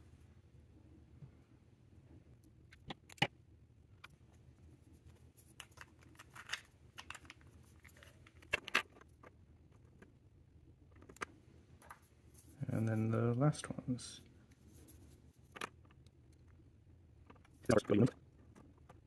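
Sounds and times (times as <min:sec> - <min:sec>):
plastic pieces clicking and scraping: 0:05.4 - 0:10.1.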